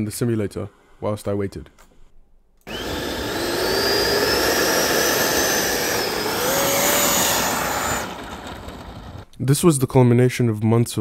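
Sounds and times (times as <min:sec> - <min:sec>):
electric ducted fan spooling up: 0:02.7 - 0:09.2.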